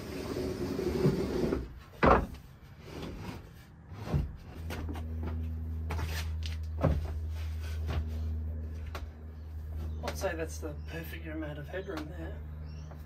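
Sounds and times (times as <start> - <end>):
wooden slats scraping on frame: 0.0 - 9.0
steady low hum: 1.4 - 13.0.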